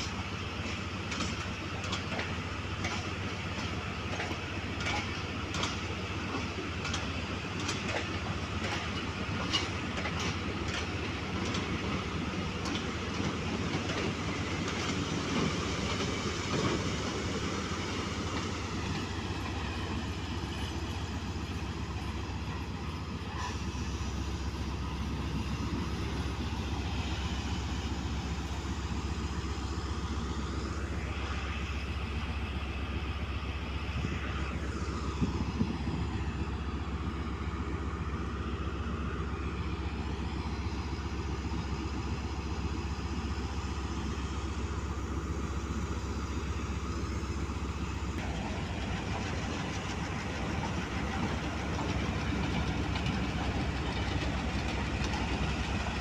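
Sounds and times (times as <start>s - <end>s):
diesel locomotive engines rumbling: 0.0s - 56.0s.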